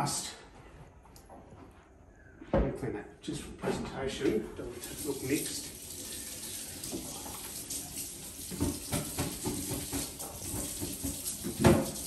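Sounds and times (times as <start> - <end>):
tap running into sink: 6.8 - 12.0.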